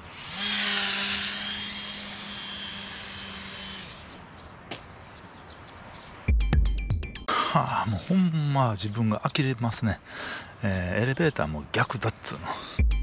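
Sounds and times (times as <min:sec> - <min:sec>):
model plane motor whining: 0:00.0 - 0:04.3.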